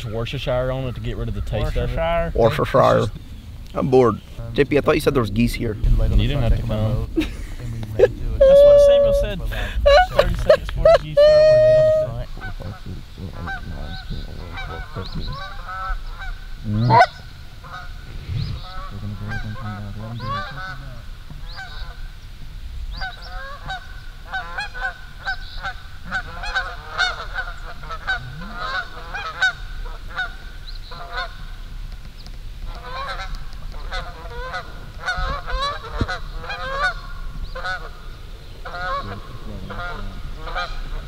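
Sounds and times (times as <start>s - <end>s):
geese honking in flight: 8.3s - 22.2s, 22.9s - 31.6s, 32.7s - 41.0s.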